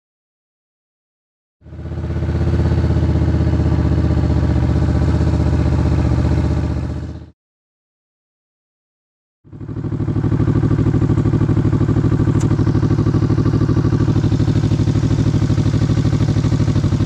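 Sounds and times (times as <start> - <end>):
motorcycle engine idling: 1.6 - 7.3, 9.5 - 17.0.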